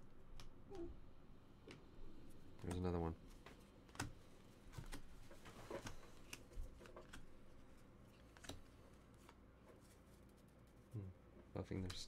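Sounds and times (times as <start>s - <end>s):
trading cards clicking and rustling: 2.6s - 9.4s.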